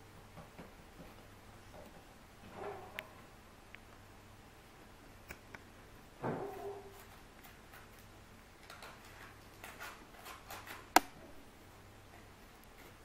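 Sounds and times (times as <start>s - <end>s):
sharp click: 10.9s - 11.2s.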